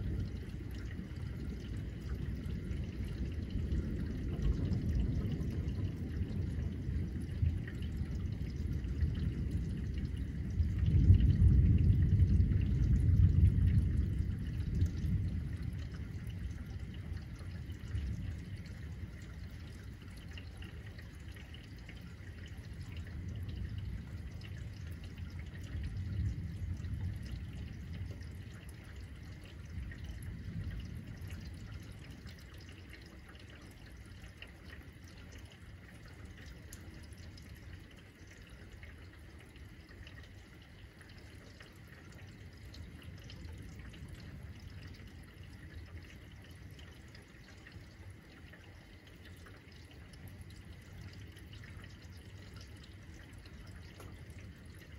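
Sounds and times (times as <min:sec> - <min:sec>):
thunder rumbling: 0:00.0 - 0:20.3, 0:21.0 - 0:32.7
rain falling and dripping: 0:00.0 - 0:54.9.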